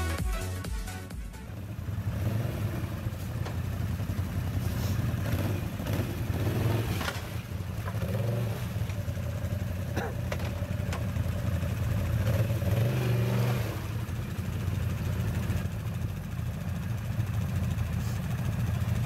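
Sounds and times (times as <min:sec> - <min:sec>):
atv engine revving: 0:01.5 - 0:19.0.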